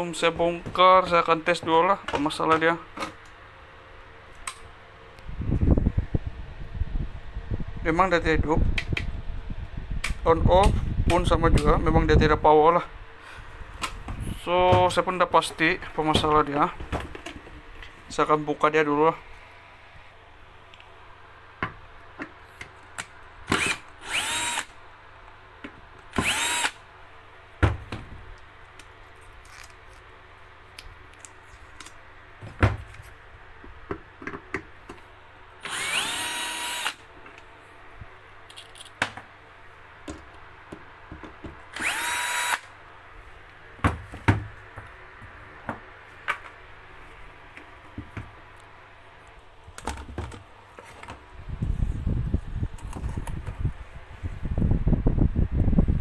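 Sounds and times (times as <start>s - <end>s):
cordless drill motor: 23.5s - 24.7s, 26.2s - 26.8s, 35.6s - 37.0s, 41.7s - 42.7s
clicks and knocks of screws: 38.5s - 39.1s.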